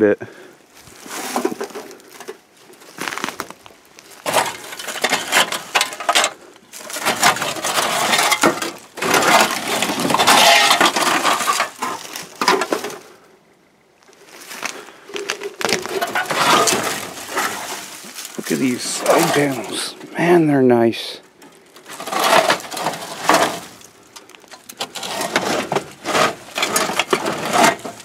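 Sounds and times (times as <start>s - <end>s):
metal panels scraping and clanking: 4.2s - 13.1s, 15.6s - 20.4s, 21.4s - 28.0s.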